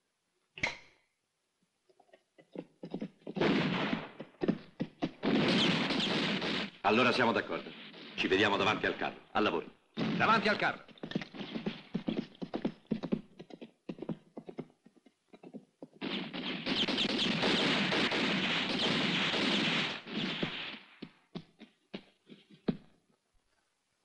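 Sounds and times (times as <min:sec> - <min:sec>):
horses galloping hoofbeats: 0:01.9 - 0:05.3, 0:10.2 - 0:16.1.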